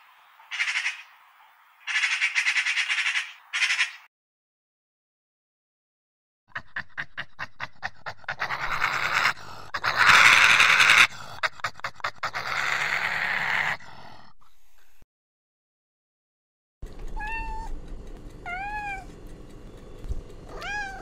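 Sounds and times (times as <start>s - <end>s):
badger huffing and panting: 6.5s - 10.2s, 10.8s - 12.5s
badger hissing breaths: 7.7s - 12.3s.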